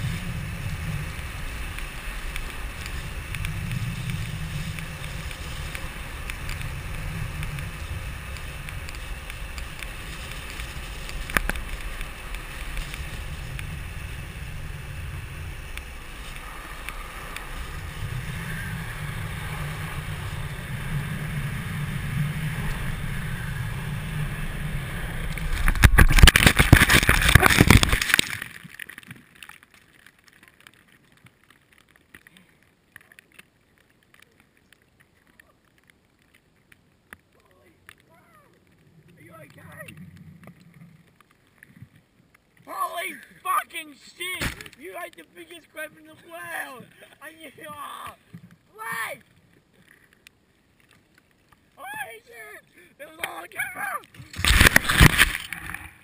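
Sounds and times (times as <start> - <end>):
wind rush on microphone: 0.0 - 28.2
longboard wheels rolling on asphalt: 0.0 - 56.0
board scraping crash: 25.2 - 28.8, 54.2 - 56.0.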